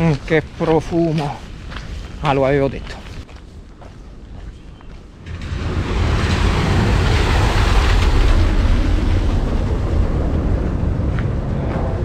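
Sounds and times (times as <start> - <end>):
steady low rumble: 0.0 - 12.0
tyres swishing through water: 5.2 - 10.1.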